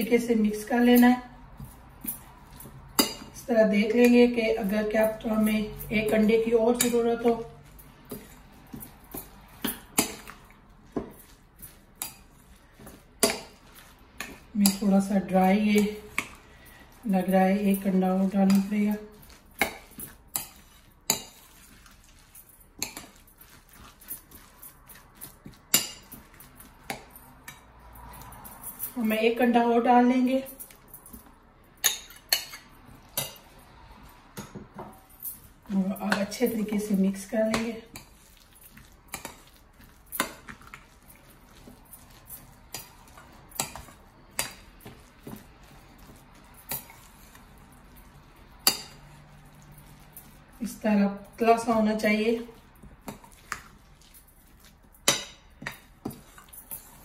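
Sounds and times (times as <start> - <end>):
spoon stirring scraping bowl: 0.0 - 57.0
spoon clinking against bowl: 1.0 - 15.2, 30.4 - 33.6, 37.5 - 50.4.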